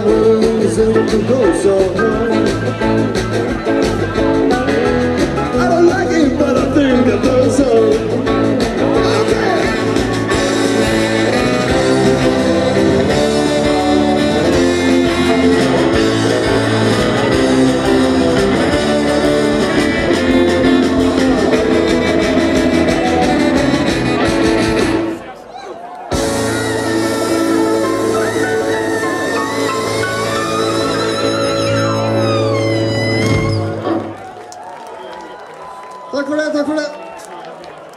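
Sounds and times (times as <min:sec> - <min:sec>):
rockabilly band playing live: 0:00.0 - 0:34.6.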